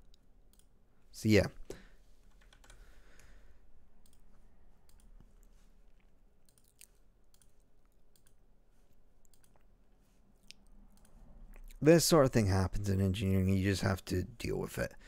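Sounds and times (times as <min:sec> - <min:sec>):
low room hum: 0:00.0 - 0:15.0
computer mouse and keyboard clicks: 0:02.2 - 0:02.8, 0:06.4 - 0:08.4, 0:09.3 - 0:09.7.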